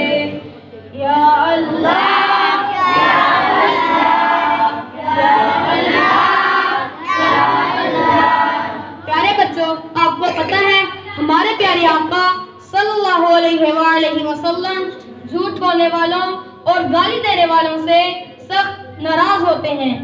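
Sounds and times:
children singing in unison: 0:00.0 - 0:09.1.

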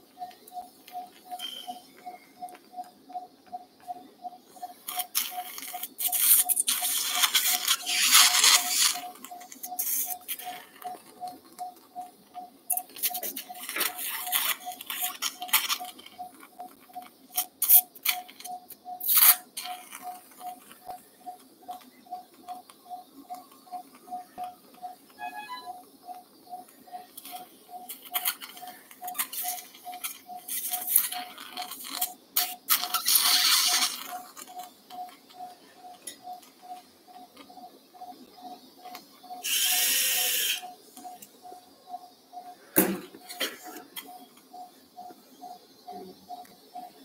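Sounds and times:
monitor beeping: 0:00.0 - 0:47.0
rustling and clicking handling: 0:04.6 - 0:25.2.

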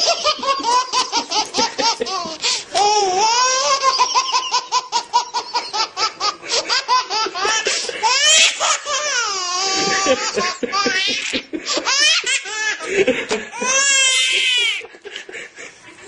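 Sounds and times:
high-pitched human laughter: 0:00.0 - 0:02.4, 0:09.6 - 0:16.0.

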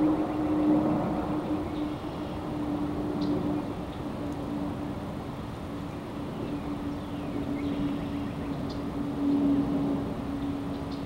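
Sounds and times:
low hum and rumble: 0:00.0 - 0:11.0.

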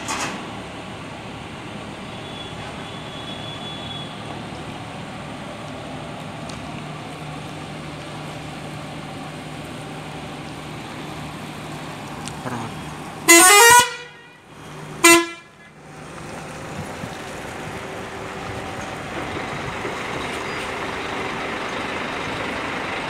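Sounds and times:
diesel coach engine running: 0:00.0 - 0:23.0
coach horn blasts: 0:13.3 - 0:15.6.

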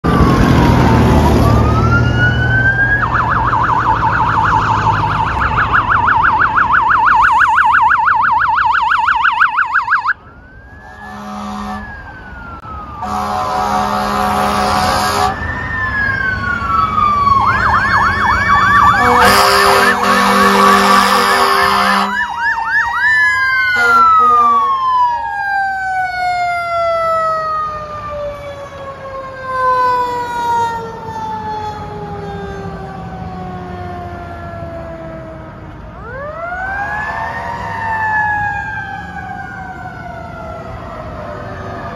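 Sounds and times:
electronic siren wailing and yelping: 0:00.0 - 0:35.4, 0:36.0 - 0:41.9
siren winding down: 0:00.0 - 0:41.9
air horn blasts: 0:10.8 - 0:11.9, 0:13.0 - 0:15.4, 0:19.0 - 0:22.2, 0:23.8 - 0:24.7.

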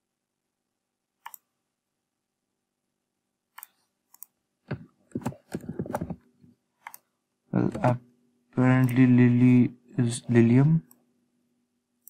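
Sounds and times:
computer mouse clicks: 0:01.2 - 0:01.5, 0:03.5 - 0:06.2, 0:06.8 - 0:07.1, 0:08.8 - 0:09.1.

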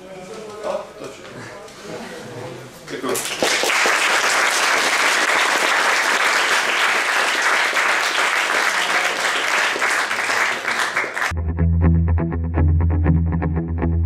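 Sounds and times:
audience applauding: 0:02.9 - 0:11.3.

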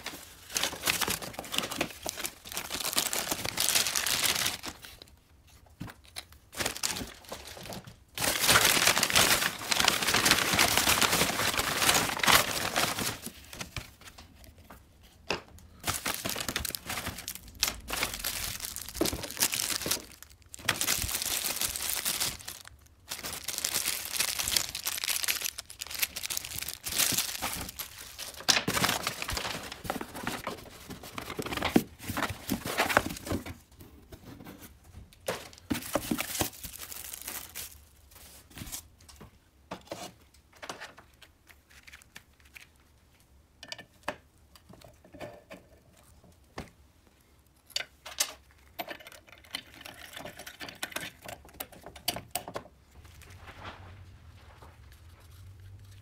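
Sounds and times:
paper and plastic bags rustling: 0:00.0 - 0:14.6, 0:15.7 - 0:39.0, 0:52.9 - 0:56.0.

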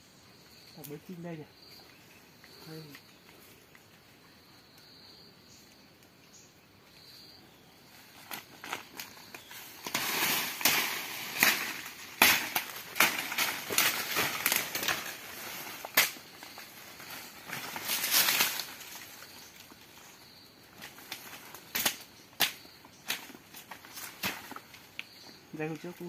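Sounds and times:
dry undergrowth crackling: 0:07.0 - 0:26.0
twigs snapping: 0:08.2 - 0:19.8, 0:20.7 - 0:26.0.

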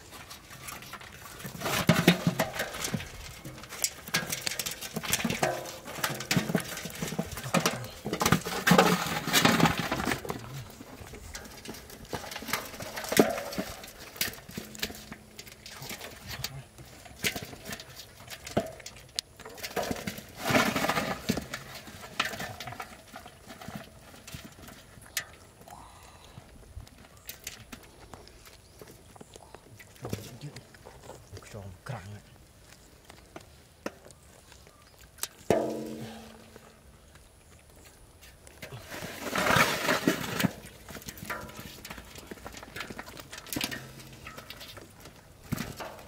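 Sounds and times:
fish thrashing in basin: 0:00.0 - 0:30.8, 0:35.1 - 0:46.0
metal basin clanging: 0:00.1 - 0:25.4, 0:35.4 - 0:36.6, 0:38.8 - 0:46.0.

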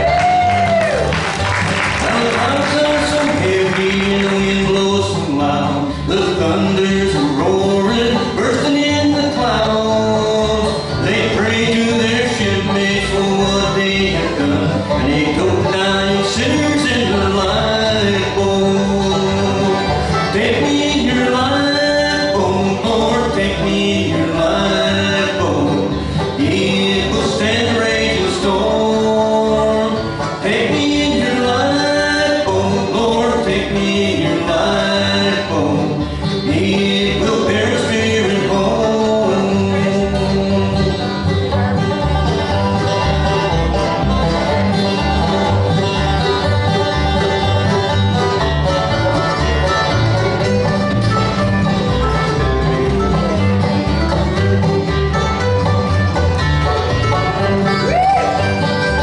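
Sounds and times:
banjo: 0:00.0 - 0:59.0
guitar: 0:00.0 - 0:59.0
person singing: 0:01.9 - 0:41.8.

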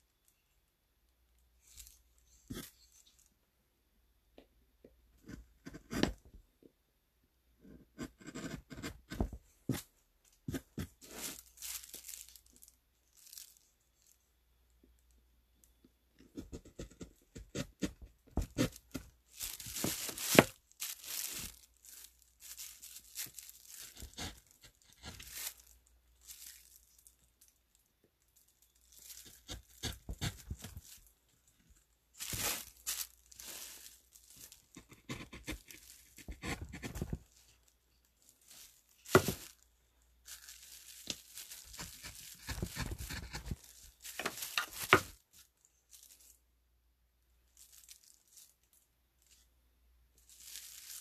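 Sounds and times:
carving tool scraping wood: 0:07.8 - 0:09.2, 0:16.3 - 0:19.0, 0:29.2 - 0:30.6, 0:34.8 - 0:37.2, 0:41.8 - 0:43.6.

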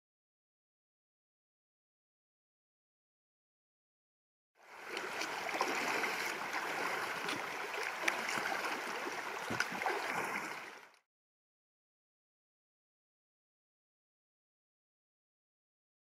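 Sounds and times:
river water gurgling over rocks: 0:04.6 - 0:10.9
splashes of wading: 0:04.6 - 0:11.0.

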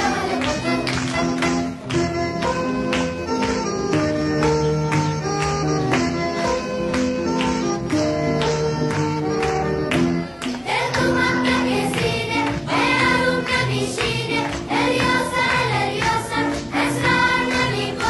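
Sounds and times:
voices singing: 0:00.0 - 0:01.0, 0:10.6 - 0:18.0
instrumental background music: 0:00.0 - 0:18.0.

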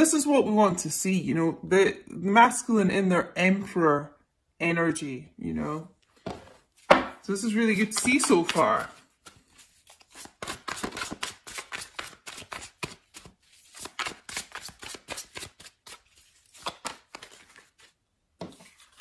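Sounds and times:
cards being shuffled: 0:06.4 - 0:19.0.

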